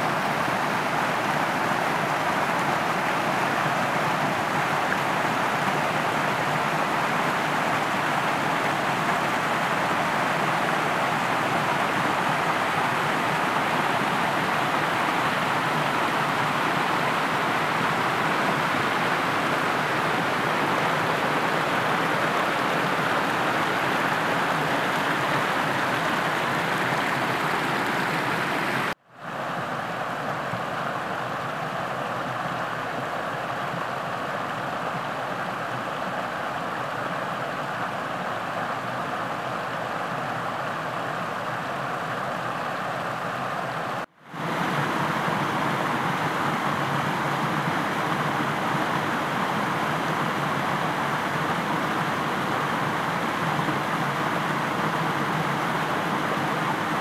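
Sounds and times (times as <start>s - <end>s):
creek rushing over rocks: 0.0s - 57.0s.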